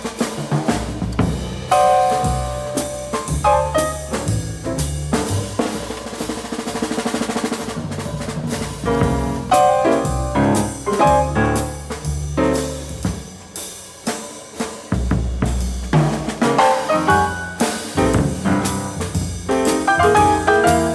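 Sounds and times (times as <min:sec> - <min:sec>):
bass: 0:00.0 - 0:20.9
drums: 0:00.0 - 0:20.9
jazz piano: 0:00.0 - 0:20.9.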